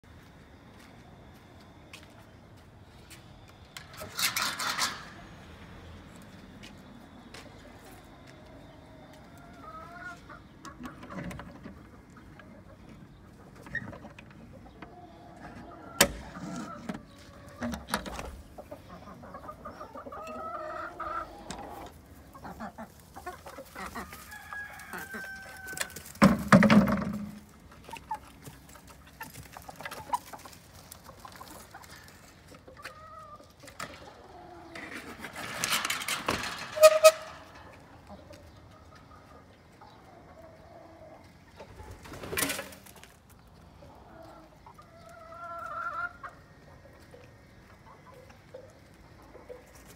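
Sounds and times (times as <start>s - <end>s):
chickens clucking: 0.2s - 49.9s
wooden coop door rattling: 26.1s - 27.4s, 35.3s - 37.6s.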